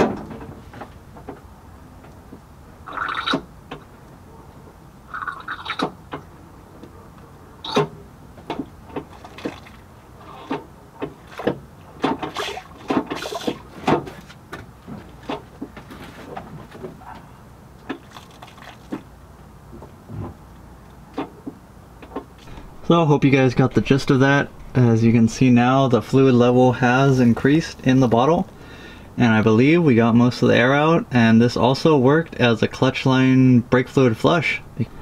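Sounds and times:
fluid and air gurgling: 0:02.8 - 0:03.5, 0:05.1 - 0:06.0, 0:08.9 - 0:11.5, 0:17.9 - 0:19.1.

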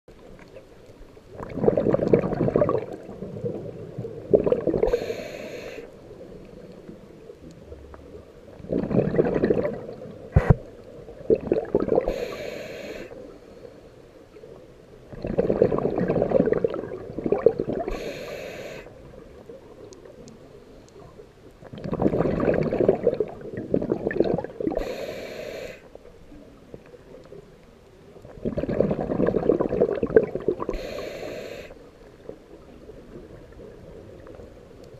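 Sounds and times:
exhaled bubbles gushing: 0:01.3 - 0:05.2, 0:08.5 - 0:12.3, 0:15.1 - 0:18.1, 0:21.6 - 0:25.0, 0:28.3 - 0:30.9
regulator hiss: 0:04.8 - 0:06.0, 0:12.1 - 0:13.3, 0:17.9 - 0:19.0, 0:24.8 - 0:26.0, 0:30.7 - 0:31.9.

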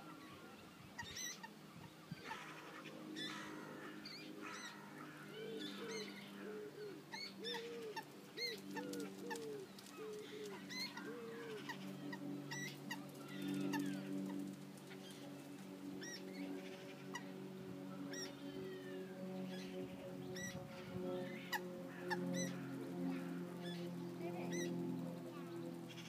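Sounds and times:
lower arched bird calls: 0:00.0 - 0:26.0
steady low hum: 0:00.0 - 0:26.0
moorhen chicks peeping: 0:04.5 - 0:17.4, 0:21.2 - 0:26.0.

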